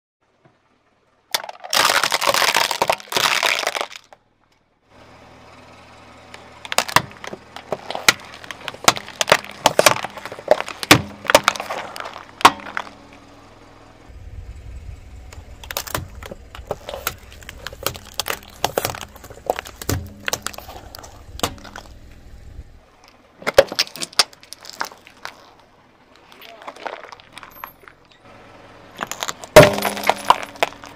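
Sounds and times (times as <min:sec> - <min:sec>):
low steady hum: 0:00.2 - 0:30.9
plastic crunching under car tyre: 0:01.3 - 0:04.2, 0:06.2 - 0:13.4, 0:15.2 - 0:30.9
plastic tub bursting: 0:01.4 - 0:04.0, 0:06.6 - 0:13.2, 0:15.4 - 0:22.0, 0:29.2 - 0:30.9.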